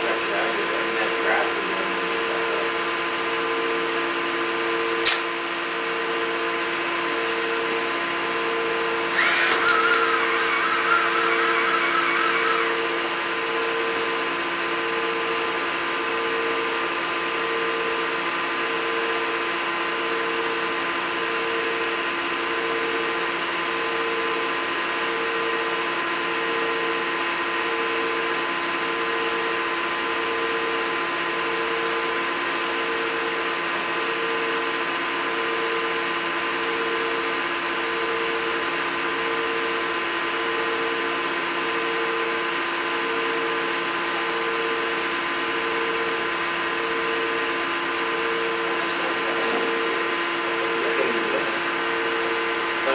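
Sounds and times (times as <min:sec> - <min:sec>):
testing machine humming: 0:00.0 - 0:52.9
pulsing tone: 0:07.0 - 0:16.6.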